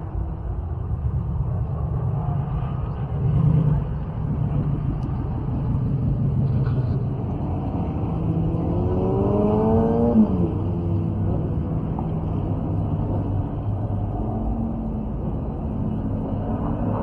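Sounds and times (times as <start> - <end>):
car engine revving: 5.6 - 17.0.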